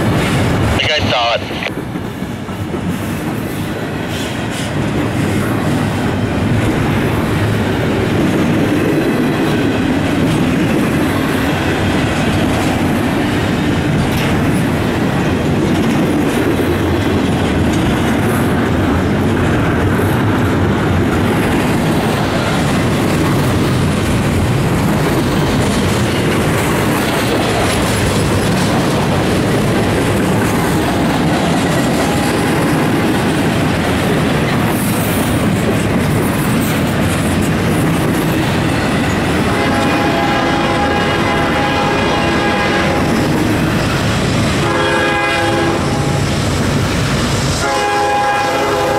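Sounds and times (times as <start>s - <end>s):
freight train rumbling past: 0.0s - 48.9s
wheels clattering over rails: 6.5s - 39.5s.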